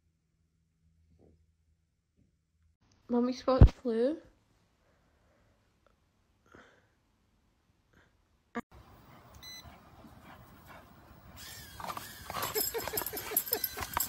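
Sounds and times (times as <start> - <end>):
dogs making excited noises: 9.7 - 14.0.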